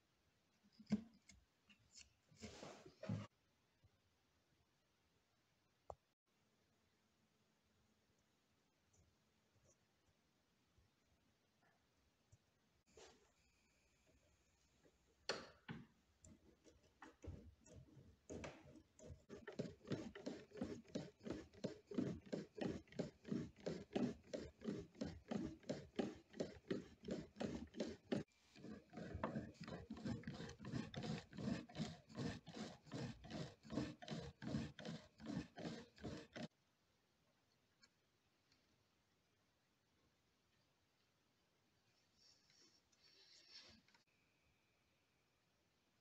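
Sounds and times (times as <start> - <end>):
cutter wheel rasping into wood: 16.6 - 36.5.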